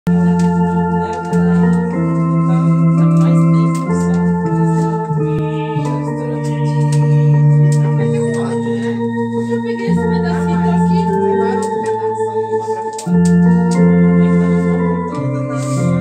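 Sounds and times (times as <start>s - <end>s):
electronic organ chords: 0.0s - 16.0s.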